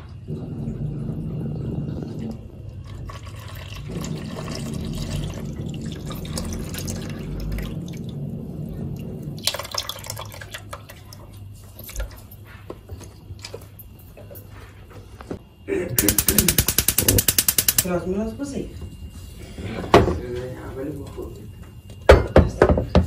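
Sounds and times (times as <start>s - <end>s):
milk pouring into a pot: 2.4s - 8.1s, 9.4s - 11.4s.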